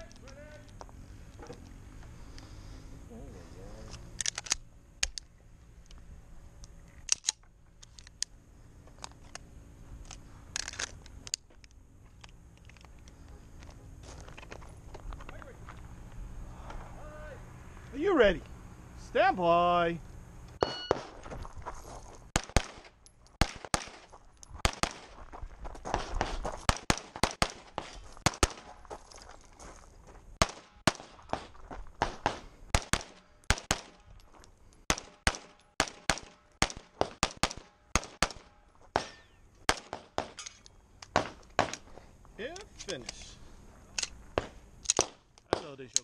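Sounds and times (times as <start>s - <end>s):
rapid pistol fire: 22.4s - 25.1s, 26.2s - 28.7s, 30.4s - 34.0s, 34.9s - 40.4s.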